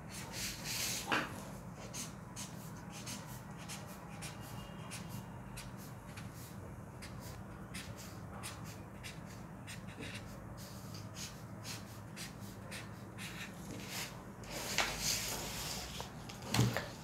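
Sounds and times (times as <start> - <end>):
pen scratching on paper: 1.8 - 15.4.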